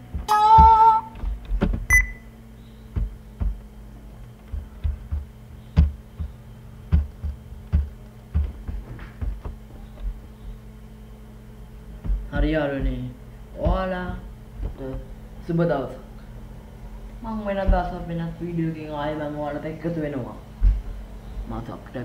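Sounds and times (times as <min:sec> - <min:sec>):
low electrical hum: 0:00.0 - 0:22.0
short high beep: 0:01.9 - 0:02.3.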